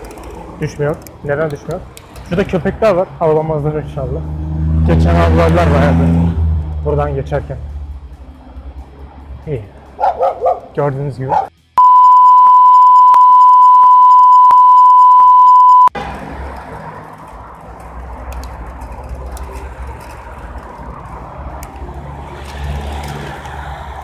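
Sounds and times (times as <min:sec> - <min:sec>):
bicycle road noise: 0:00.0 - 0:11.7, 0:16.0 - 0:24.0
cars passing: 0:00.0 - 0:11.8, 0:15.9 - 0:24.0
censor bleep: 0:11.8 - 0:15.9.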